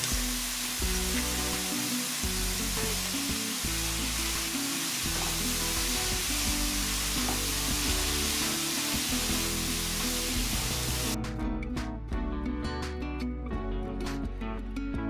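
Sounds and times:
food sizzling in a wok: 0:00.0 - 0:11.2
background music: 0:00.0 - 0:15.0.

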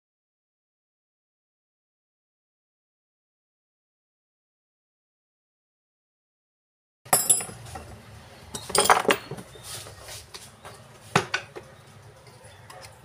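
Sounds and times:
screwdriver clinking on metal: 0:07.1 - 0:07.9, 0:08.5 - 0:09.5.

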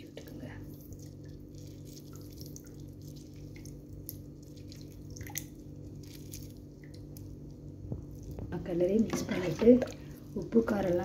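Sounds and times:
low hum: 0:00.0 - 0:11.0
liquid dripping into pot: 0:00.7 - 0:08.5.

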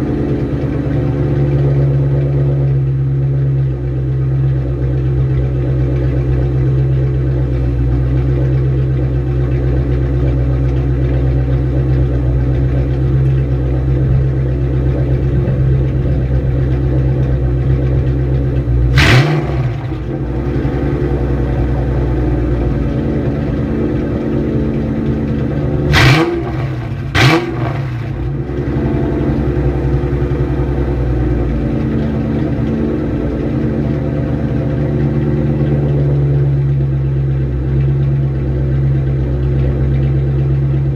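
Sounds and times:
car engine idling: 0:00.0 - 0:40.9
engine throttle blips: 0:00.0 - 0:40.9.

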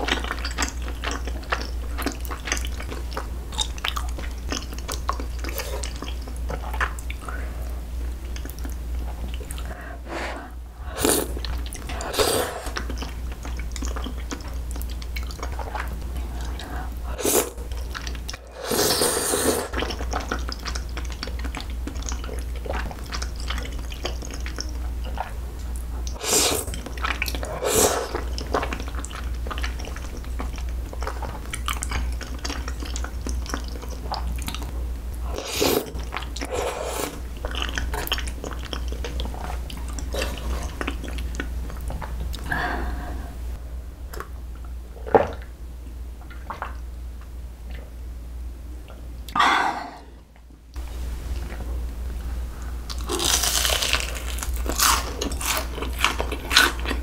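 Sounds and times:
wet chewing: 0:00.0 - 0:07.3, 0:08.2 - 0:09.8, 0:11.0 - 0:16.8, 0:19.7 - 0:34.7, 0:35.3 - 0:42.5, 0:52.9 - 0:57.0
slurping noodles: 0:10.1 - 0:12.8, 0:18.5 - 0:19.8, 0:26.2 - 0:26.8, 0:27.4 - 0:28.2, 0:35.3 - 0:37.2.

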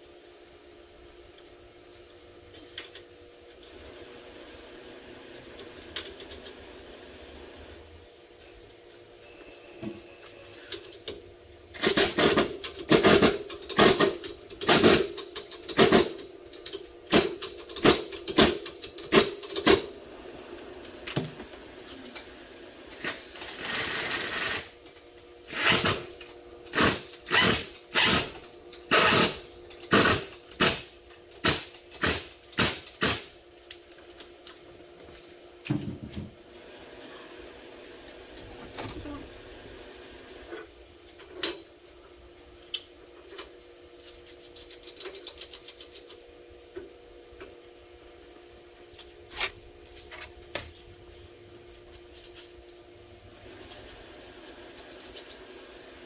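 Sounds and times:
pneumatic impact wrench bursts: 0:11.7 - 0:16.2, 0:22.9 - 0:24.8, 0:25.5 - 0:26.1, 0:26.7 - 0:33.4.

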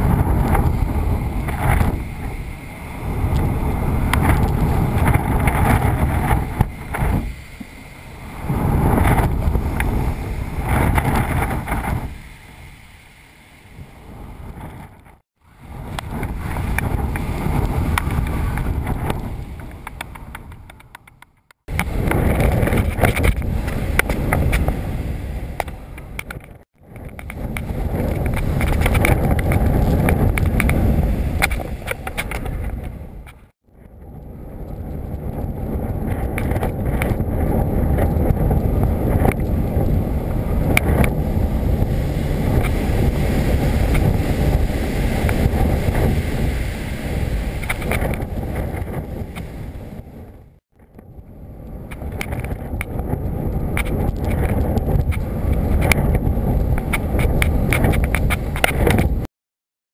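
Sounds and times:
strong wind buffeting: 0:00.0 - 0:59.3
sharp crackles: 0:25.6 - 0:41.2, 0:51.0 - 0:59.3.

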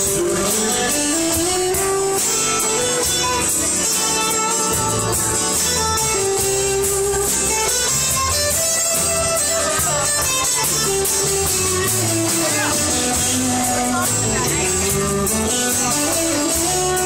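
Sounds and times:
drums with cymbals: 0:00.0 - 0:17.0
electric bass: 0:00.0 - 0:17.0
strummed acoustic guitar: 0:00.0 - 0:17.0.

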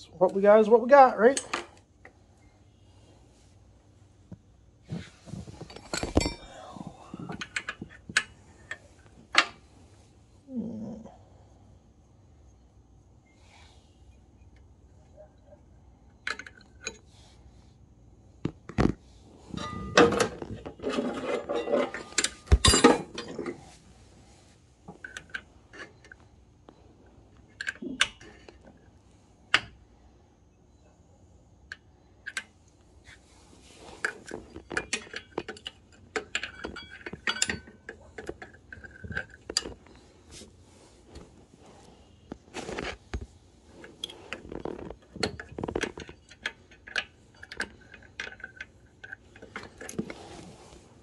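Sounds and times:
metal wrench clinking on engine parts: 0:05.7 - 0:08.8, 0:19.5 - 0:23.4, 0:34.2 - 0:39.9.

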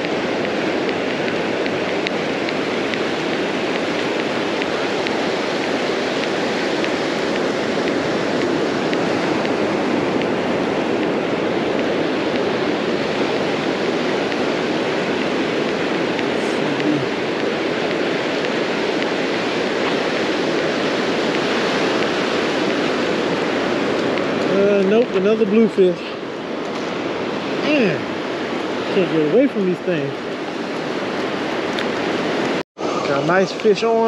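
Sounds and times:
ocean surf breaking on beach: 0:00.0 - 0:34.0.

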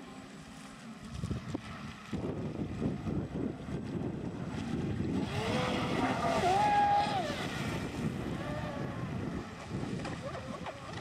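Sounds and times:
electric motor whine: 0:02.2 - 0:09.9.

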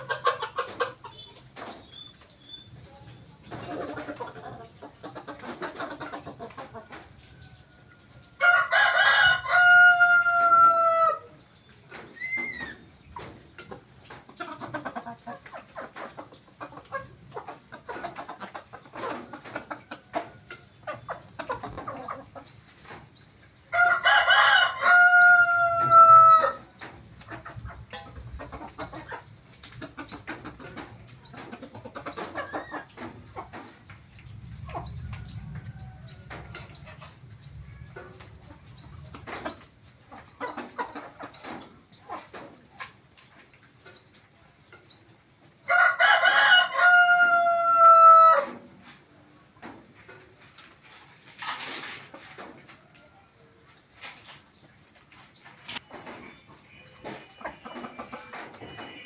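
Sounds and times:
hens clucking softly: 0:00.0 - 0:08.8, 0:09.6 - 0:56.3
rooster crowing: 0:08.3 - 0:11.2, 0:23.8 - 0:26.6, 0:45.7 - 0:48.5.

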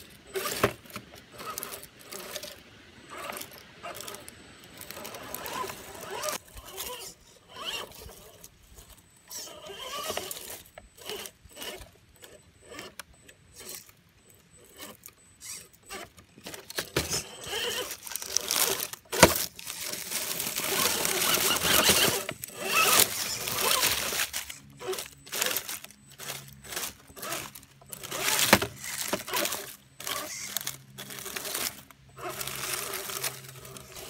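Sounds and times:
electric motor whining: 0:00.0 - 0:34.0
tyres scrabbling on rock: 0:14.6 - 0:34.0.

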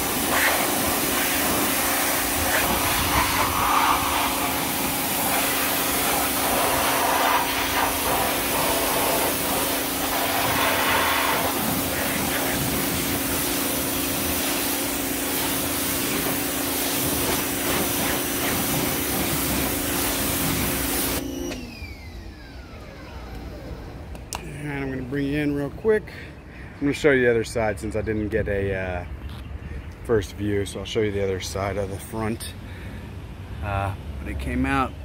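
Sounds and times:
hissing water jet spraying: 0:00.0 - 0:21.2
pressure washer hum: 0:00.0 - 0:25.0
motor winding down whine: 0:21.0 - 0:24.3.

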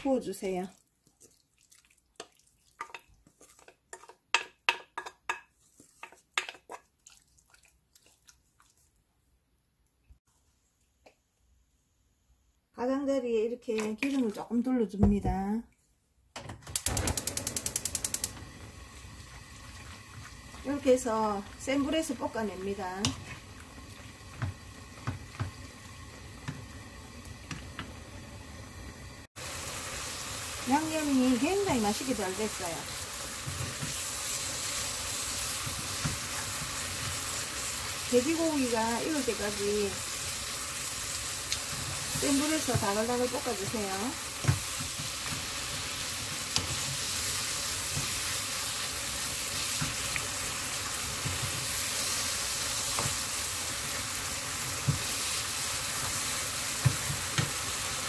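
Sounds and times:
faint steady sizzle: 0:00.0 - 0:13.6, 0:16.8 - 0:58.0
wooden spatula knocking pan: 0:03.9 - 0:06.7.

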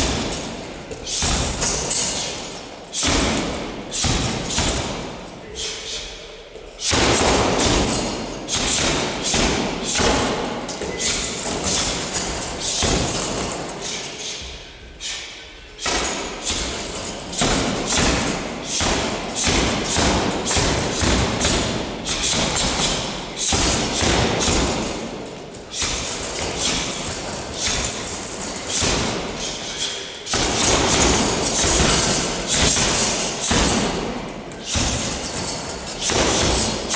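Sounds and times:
punches thumping punching bag: 0:00.0 - 0:05.2, 0:06.8 - 0:13.9, 0:15.8 - 0:29.7, 0:30.3 - 0:36.9.

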